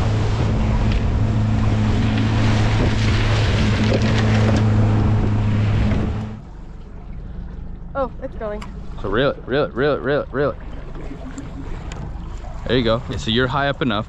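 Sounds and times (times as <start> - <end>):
motorboat engine hum: 0.0 - 14.0
water rushing past hull: 0.0 - 14.0.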